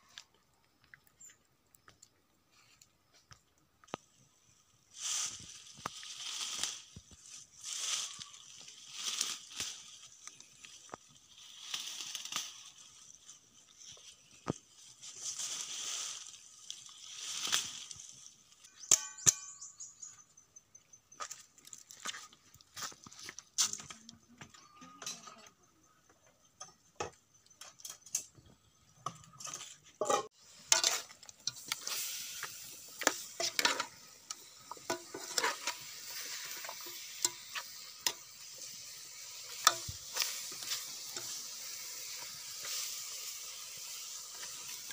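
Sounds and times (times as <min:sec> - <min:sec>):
chicken sizzling: 0:03.9 - 0:19.1, 0:29.0 - 0:44.9
vines rustling: 0:04.8 - 0:18.9
metal ladle scraping pot: 0:29.0 - 0:38.6.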